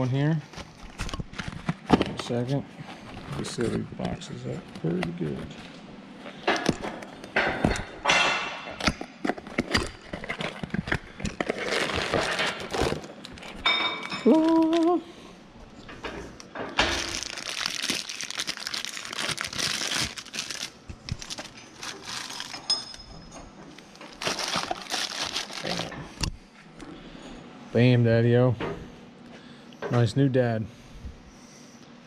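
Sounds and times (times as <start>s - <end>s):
wrapping and cardboard crinkling: 8.8s - 15.1s, 16.8s - 22.9s, 23.7s - 26.0s
knocks and clinks of handling: 13.4s - 14.6s, 21.3s - 25.9s.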